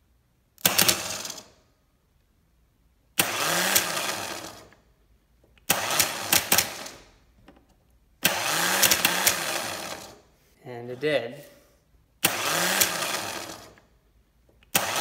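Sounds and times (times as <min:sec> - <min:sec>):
starter motor whirring: 0:03.2 - 0:04.8, 0:05.6 - 0:07.0, 0:08.2 - 0:10.2, 0:12.2 - 0:13.9, 0:14.7 - 0:15.0.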